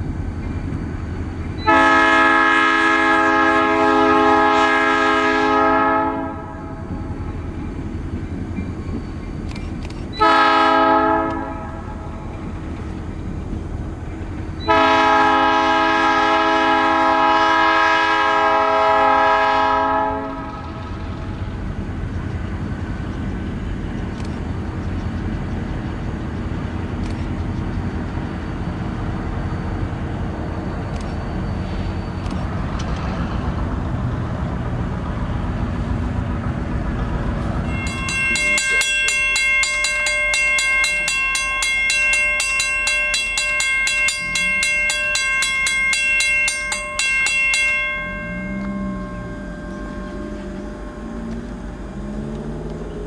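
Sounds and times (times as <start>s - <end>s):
crossing warning bell ringing: 0.0s - 23.8s, 35.6s - 52.6s
train passing rumble: 0.0s - 53.0s
locomotive horn: 1.6s - 6.9s, 10.2s - 12.1s, 14.6s - 20.7s, 47.7s - 52.3s.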